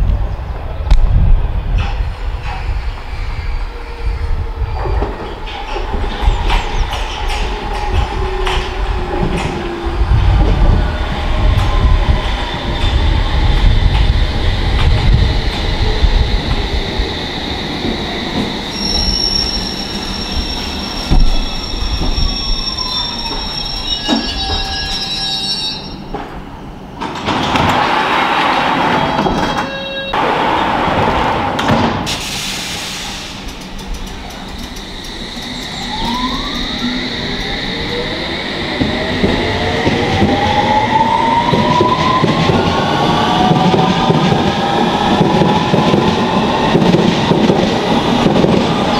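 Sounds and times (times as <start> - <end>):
train wheels rumbling on track: 0.0 - 25.2, 25.8 - 48.9
high-pitched brake squeal: 18.6 - 26.1, 29.0 - 30.4, 34.7 - 38.0.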